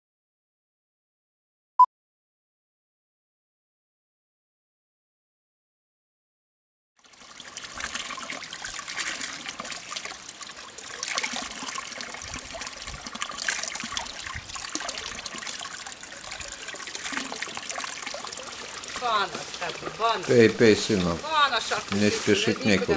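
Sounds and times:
water trickling and splashing: 0:07.0 - 0:22.9
hands in water stream: 0:07.1 - 0:22.9.

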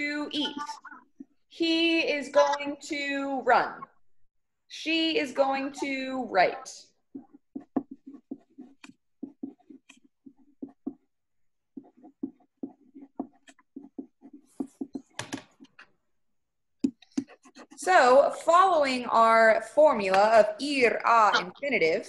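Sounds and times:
pen scratching on paper: 0:04.9 - 0:15.9, 0:16.8 - 0:19.3, 0:20.2 - 0:22.0.

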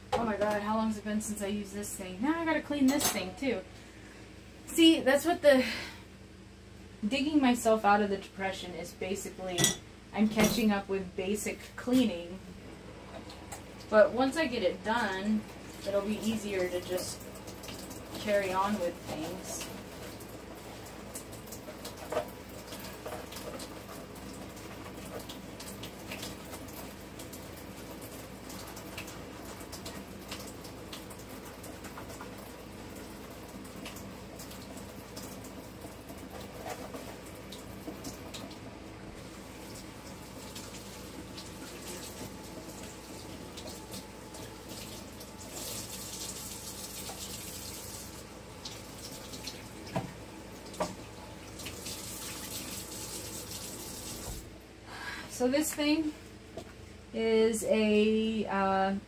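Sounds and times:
dishware clinking: 0:09.6 - 0:09.8
tap running into sink: 0:49.9 - 0:51.0.

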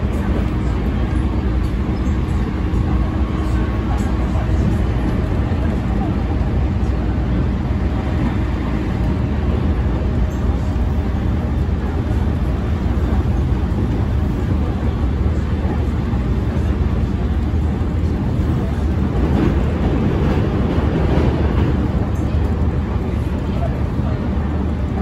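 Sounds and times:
train wheels rumbling on track: 0:00.0 - 0:25.0.

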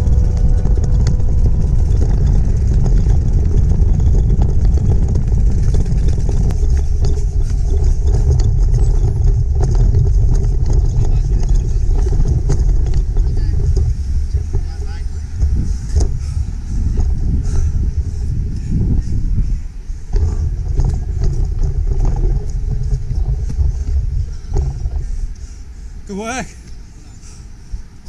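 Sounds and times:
light clicks and rattles: 0:00.0 - 0:25.8
pram rolling over asphalt: 0:00.0 - 0:28.0
wind on microphone: 0:00.0 - 0:28.0.

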